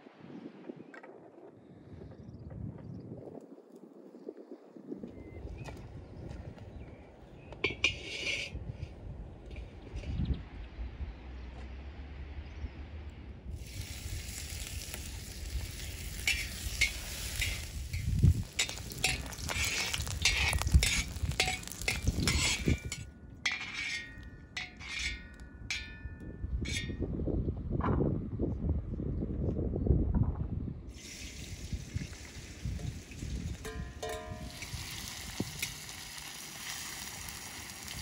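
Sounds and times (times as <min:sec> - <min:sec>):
metal ladle scraping a pan: 0:07.6 - 0:08.9, 0:15.7 - 0:26.0, 0:33.6 - 0:37.1
food sizzling in a wok: 0:13.6 - 0:23.0, 0:34.1 - 0:38.0
ladle clinking on metal: 0:15.9 - 0:26.9, 0:33.6 - 0:34.8.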